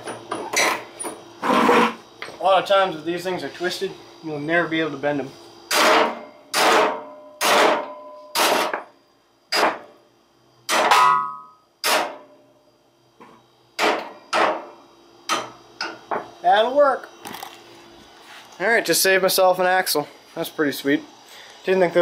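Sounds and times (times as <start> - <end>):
hammer striking steel: 5.7 - 8.8, 10.7 - 12.2.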